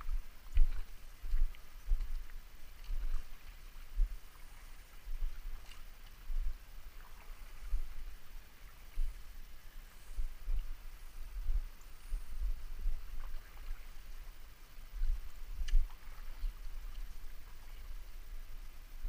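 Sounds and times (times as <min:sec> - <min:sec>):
river water lapping: 0:00.0 - 0:19.0
faint small splashes: 0:12.9 - 0:14.4, 0:15.0 - 0:18.3.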